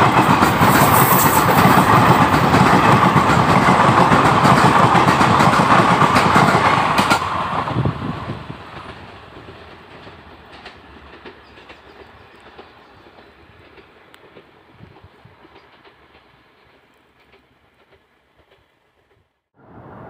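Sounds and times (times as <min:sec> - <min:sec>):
train wheels clattering over rails: 0:00.0 - 0:19.3.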